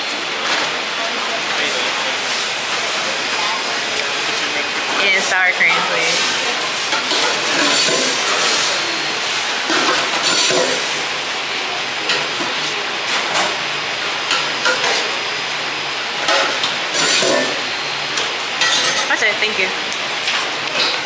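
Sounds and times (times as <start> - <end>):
metal spoons clinking on steel pans: 6.9 - 8.7, 16.3 - 17.6, 18.6 - 19.2.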